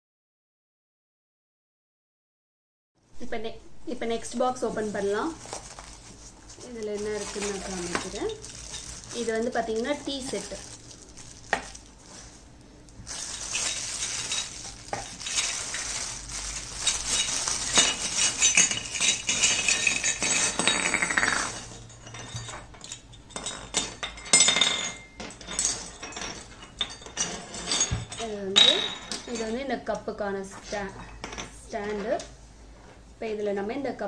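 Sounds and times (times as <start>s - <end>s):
plastic wrapping crinkling: 4.4s - 20.3s
small metal cups clinking: 6.8s - 12.2s, 13.1s - 29.6s.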